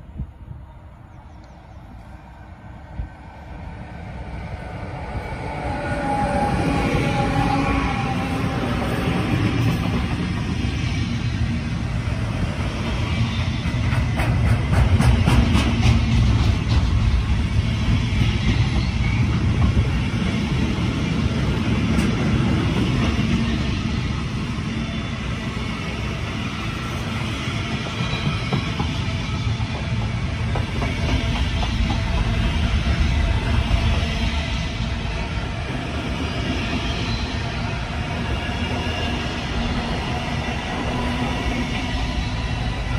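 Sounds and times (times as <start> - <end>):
freight wagon wheels rumbling on rails: 7.2 - 23.7, 27.0 - 42.9.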